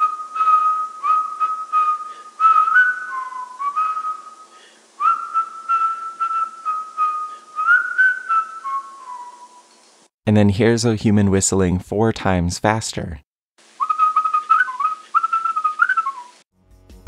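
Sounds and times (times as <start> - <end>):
person whistling a tune: 0.0 - 9.6, 13.8 - 16.4.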